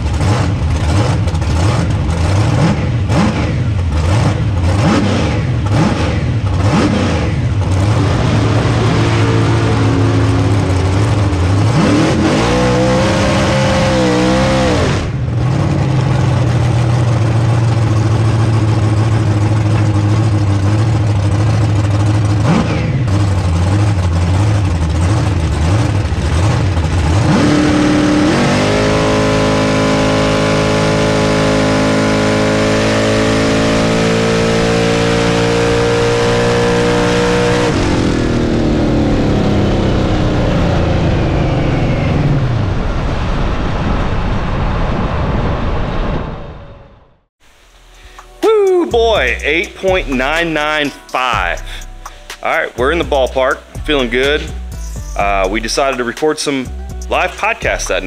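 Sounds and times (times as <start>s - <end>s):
supercharged engine revving: 0.0s - 43.3s, 47.6s - 58.0s.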